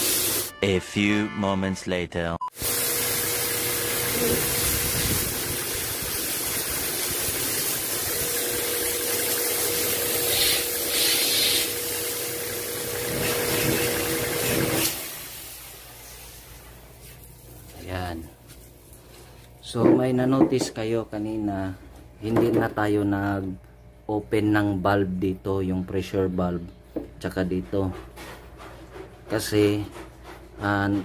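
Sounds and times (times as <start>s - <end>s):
water spraying hiss: 0.0s - 0.5s, 2.6s - 12.4s
pump motor whine: 2.6s - 16.8s.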